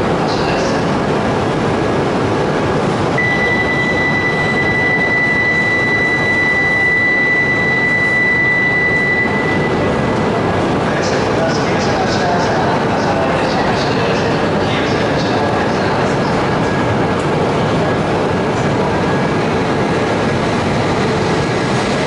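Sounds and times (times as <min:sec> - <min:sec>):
train whirring: 0:00.0 - 0:22.0
high electronic tone: 0:03.2 - 0:10.5.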